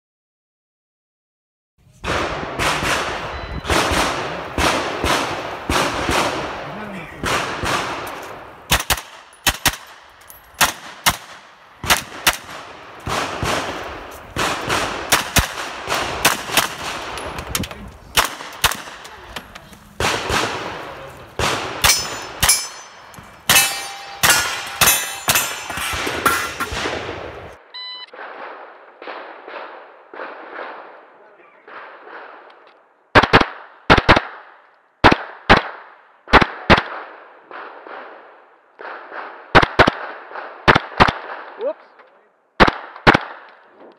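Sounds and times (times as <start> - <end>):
rifle gunshots: 2.0 - 27.6, 33.1 - 41.6
bullets ringing off steel plates: 21.8 - 26.8.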